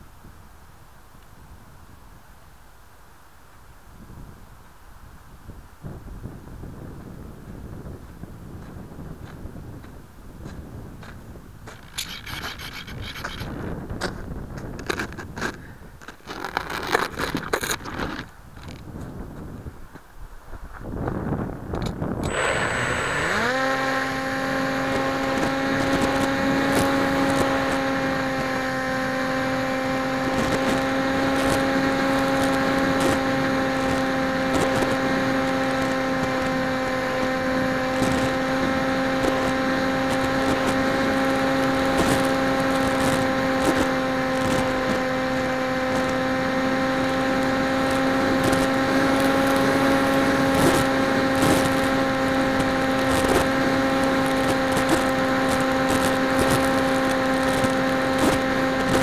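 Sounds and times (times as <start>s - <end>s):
electric motor and propeller whine: 21.0s - 59.0s.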